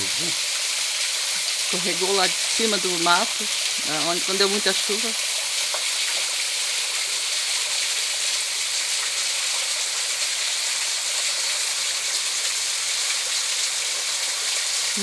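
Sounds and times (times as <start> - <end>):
small waterfall splashing: 0.0 - 15.0.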